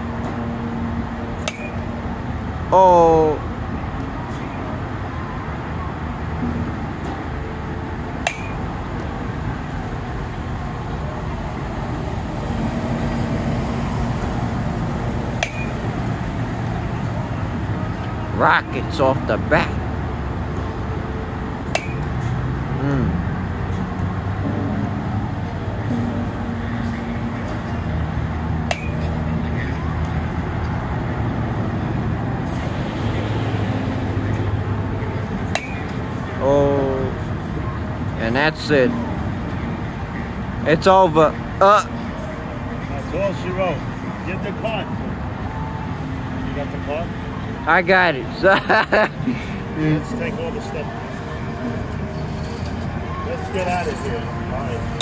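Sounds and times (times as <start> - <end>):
bat hitting softball: 1.4 - 1.8, 8.2 - 8.6, 15.4 - 15.8, 21.7 - 22.1, 28.7 - 29.1, 35.5 - 35.9.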